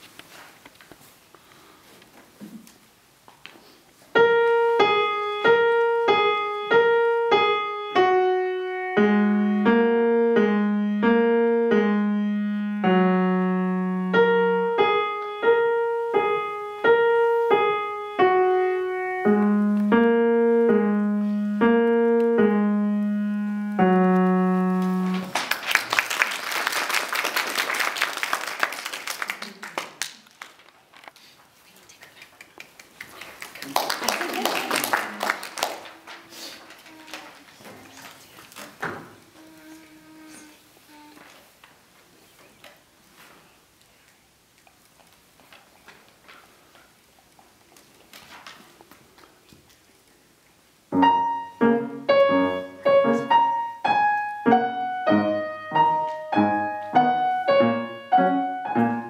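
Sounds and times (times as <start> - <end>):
simple piano tune: 4.2 - 25.4, 50.9 - 59.0
audience applauding: 24.8 - 30.9, 32.2 - 38.7.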